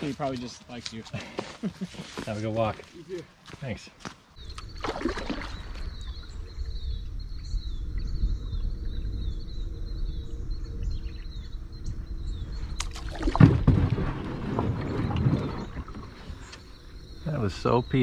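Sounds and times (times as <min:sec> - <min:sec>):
bird chirping: 0:02.3 - 0:18.0
low rumble: 0:05.6 - 0:17.2
kayak hitting rock: 0:12.8 - 0:16.1.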